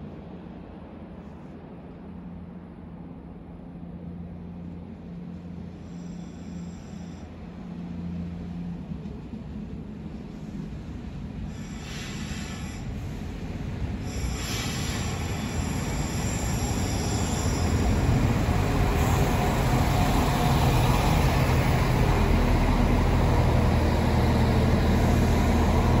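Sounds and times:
train brake squeal: 5.8s - 7.4s, 11.5s - 13.4s, 14.0s - 20.1s
diesel engines humming: 16.5s - 26.0s.

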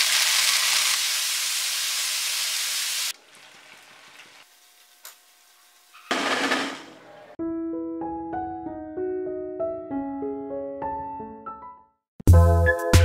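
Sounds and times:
vegetables sizzling in hot oil: 0.0s - 6.0s.

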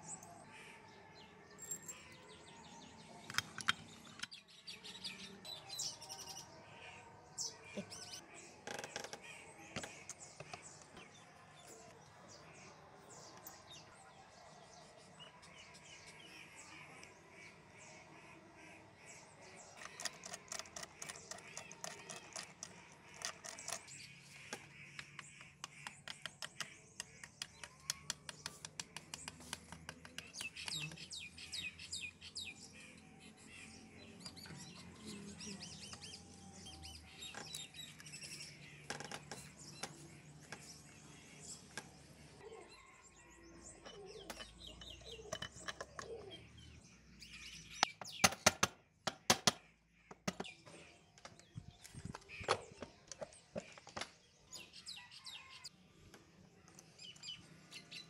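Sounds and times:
small birds chirping: 0.0s - 58.0s
metal parts clicking and tapping: 19.8s - 30.9s, 43.8s - 46.3s.

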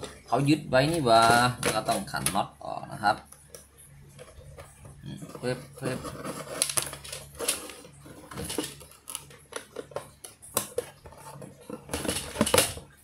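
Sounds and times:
cardboard box rustling: 4.2s - 12.7s.

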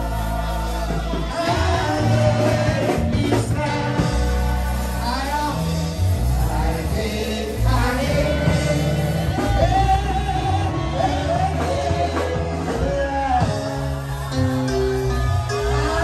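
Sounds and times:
congregation singing: 0.0s - 16.0s
instrumental accompaniment: 0.0s - 16.0s
prominent bass line: 0.0s - 16.0s.

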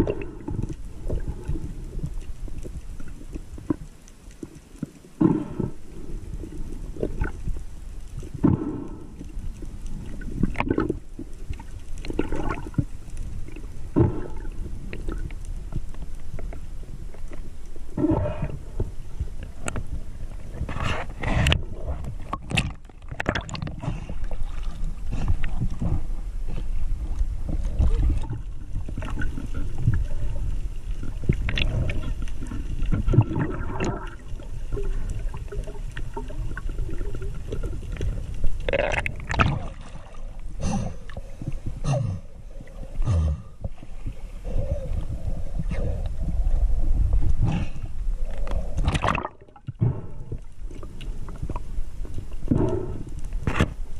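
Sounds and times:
water rushing and gurgling: 0.0s - 53.9s
water splashing: 9.9s - 15.4s, 20.5s - 43.0s, 48.4s - 51.8s
low steady rumble: 23.7s - 53.9s.

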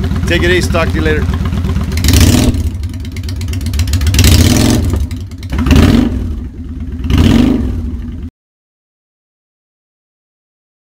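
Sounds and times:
motorcycle engine idling: 0.0s - 8.3s
motorcycle throttle blips: 0.0s - 8.3s.

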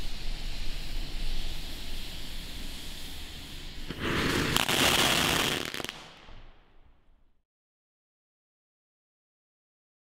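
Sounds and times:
firework crackling rush: 0.0s - 7.0s
firework fountain hissing: 0.0s - 7.2s.

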